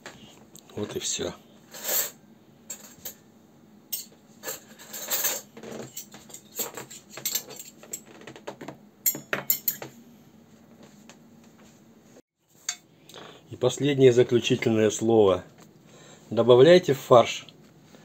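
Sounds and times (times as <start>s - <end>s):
cutlery and dishes clinking: 1.8s - 3.2s, 3.9s - 8.2s, 9.1s - 10.0s.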